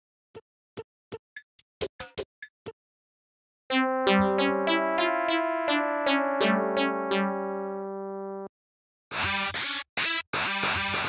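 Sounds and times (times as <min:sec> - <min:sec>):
retro synth notes: 0:03.7 - 0:08.5.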